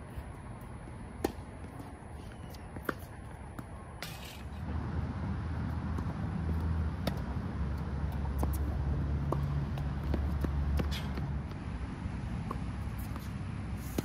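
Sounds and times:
tennis ball struck by rackets: 1.2 - 1.5, 5.6 - 11.6, 12.4 - 14.0
vehicle engine rumbling: 4.1 - 14.0.

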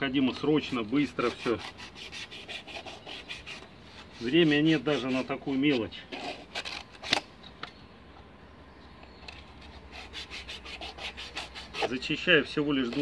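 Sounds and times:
hand tool scraping plastic: 0.3 - 7.3, 9.6 - 13.0.

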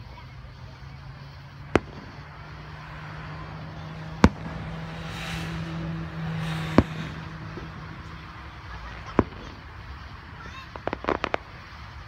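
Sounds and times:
steady low hum: 0.4 - 12.0
firework bangs: 1.0 - 12.0.

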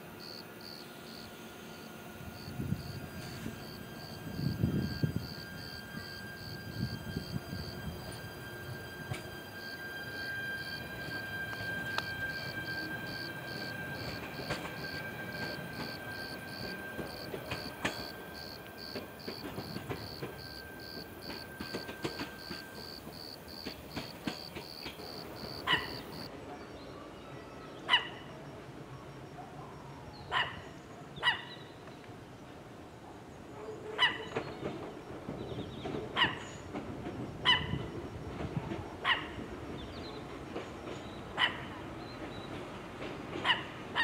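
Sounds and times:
train hum: 0.0 - 44.0
dog barking: 30.3 - 30.6.

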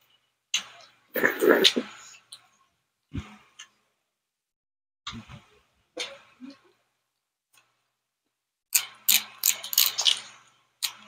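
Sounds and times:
soft mouth sounds: 1.2 - 2.2.

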